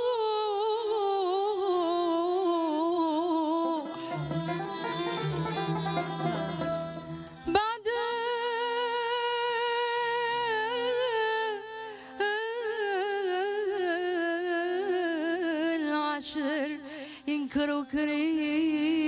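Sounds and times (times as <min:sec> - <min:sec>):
woman singing wordless melody: 0:00.0 - 0:04.0, 0:07.4 - 0:19.0
plucked string accompaniment: 0:03.1 - 0:08.4.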